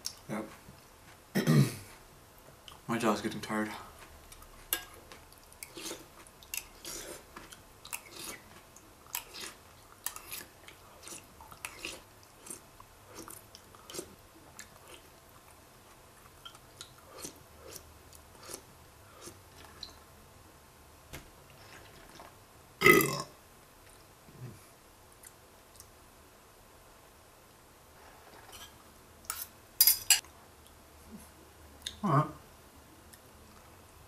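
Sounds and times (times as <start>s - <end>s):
chewing crunchy cereal: 3.9s - 20.0s.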